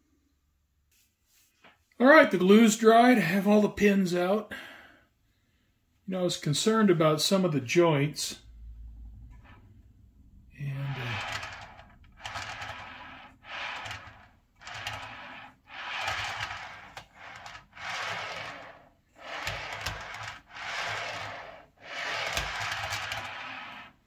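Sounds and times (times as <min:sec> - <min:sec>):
model train car rolling on track: 0:10.6 - 0:24.0.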